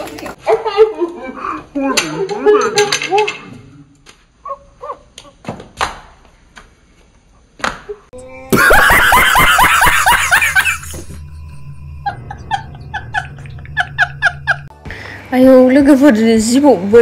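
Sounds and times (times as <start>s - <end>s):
man laughing hysterically: 8.5s - 11.2s, 12.0s - 14.7s.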